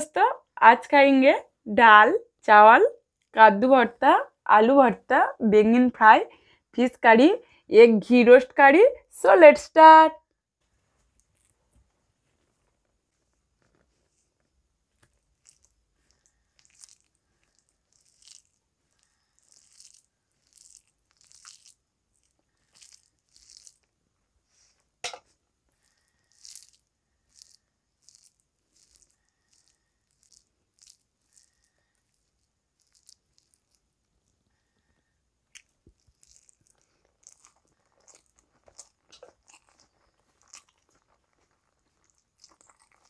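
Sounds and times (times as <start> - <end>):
hands squishing rice: 11.1 - 11.9, 14.1 - 43.0.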